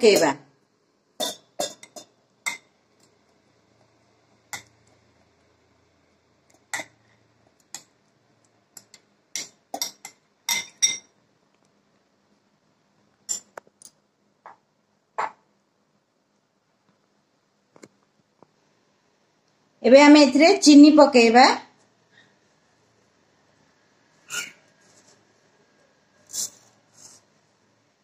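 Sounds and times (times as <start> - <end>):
spoon clinking against steel jar: 8.8 - 11.1.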